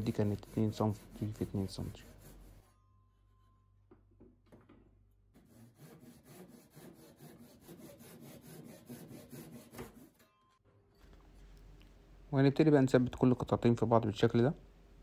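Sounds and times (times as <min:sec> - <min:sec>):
hand saw cutting wood: 0:00.0 - 0:02.7, 0:05.4 - 0:10.2.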